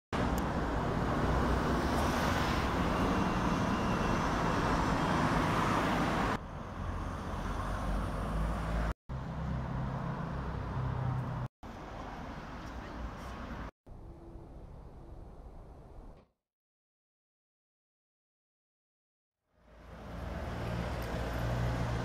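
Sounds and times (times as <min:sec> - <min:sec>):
road traffic passing: 0:00.2 - 0:15.1, 0:19.5 - 0:22.0.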